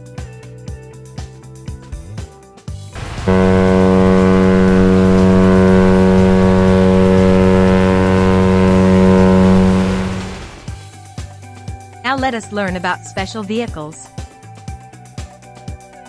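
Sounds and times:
ship's horn deep blast: 3.0 - 10.8.

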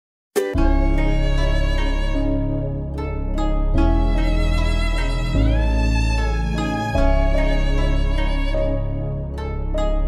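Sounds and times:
violin melody: 0.4 - 10.0.

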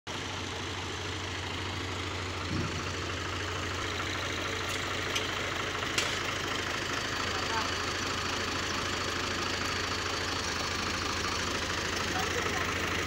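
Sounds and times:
tractor diesel engine idling: 0.1 - 13.0
low thump: 2.4 - 3.2.

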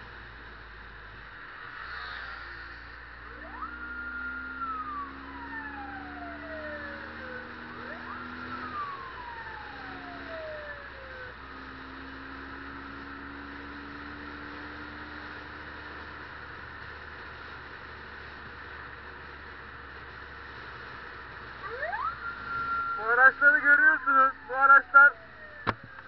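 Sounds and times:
motorcycle engine humming: 0.0 - 26.0
road and wind noise: 0.0 - 26.0
police siren wailing: 3.3 - 14.0, 21.6 - 26.0.

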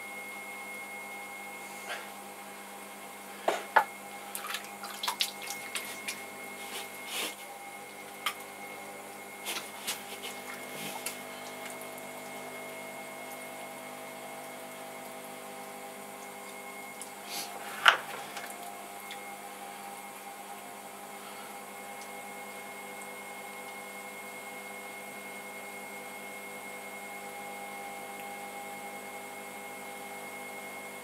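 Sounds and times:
pottery wheel motor hum: 0.0 - 31.0
wet clay squelching: 4.3 - 7.5, 9.4 - 11.9.

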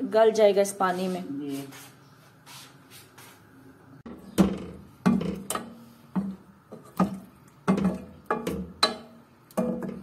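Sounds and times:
spoon knocking metal pot: 4.4 - 10.0.

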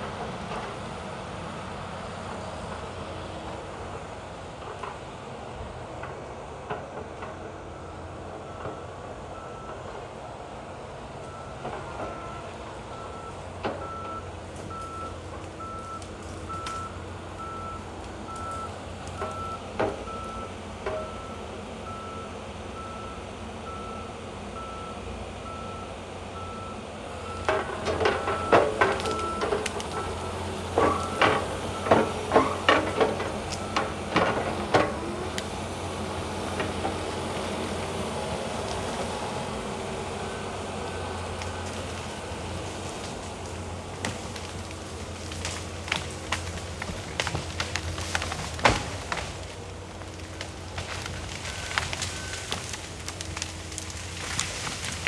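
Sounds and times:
diesel engine running: 0.0 - 55.0
reversing alarm beeping: 11.2 - 34.4, 51.4 - 52.7
grapple knocking on logs: 45.3 - 49.4.

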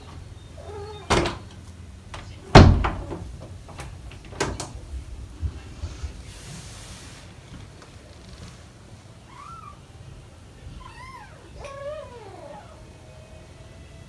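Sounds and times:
knocks and thumps: 2.1 - 4.8
cat meow: 9.3 - 9.8, 10.7 - 12.9.

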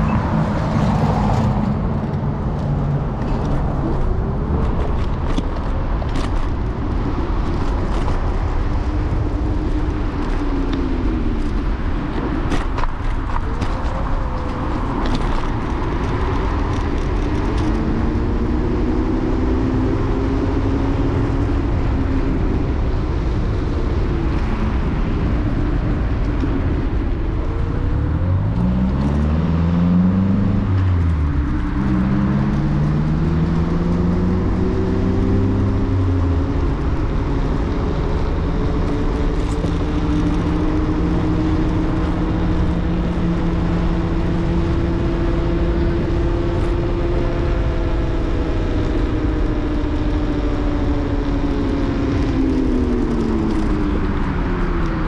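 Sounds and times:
wind and road noise: 0.0 - 55.0
electric scooter motor whine: 36.6 - 55.0.

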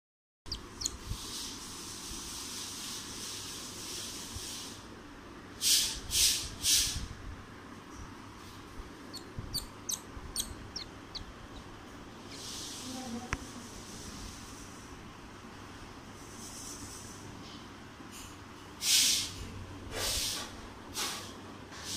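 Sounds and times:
squirrel squealing: 0.5 - 1.0, 9.1 - 11.8
squirrel chirping: 0.5 - 1.2, 9.1 - 12.5.

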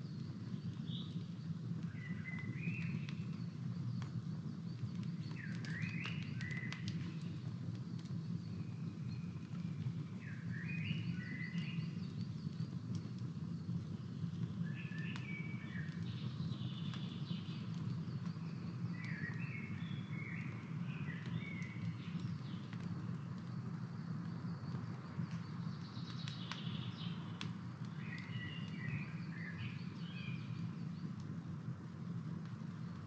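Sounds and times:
campfire crackling and popping: 0.0 - 33.0
small birds chirping: 0.0 - 33.0.

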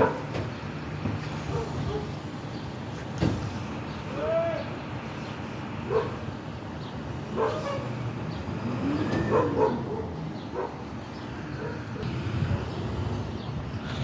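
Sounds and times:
dog barking: 0.0 - 0.3, 1.5 - 2.2, 5.9 - 6.2, 7.4 - 7.9, 9.3 - 10.8
garbage truck engine rumbling: 0.0 - 14.0.

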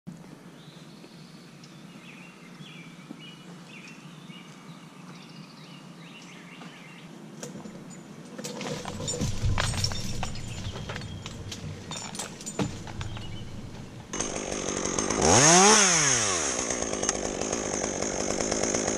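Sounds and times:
knocks and rustling: 7.4 - 14.3
low hum: 8.7 - 14.6.

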